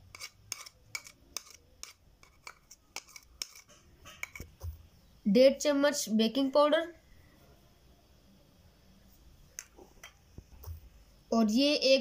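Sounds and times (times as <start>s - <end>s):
metal spoon scraping a bowl: 0.0s - 4.6s.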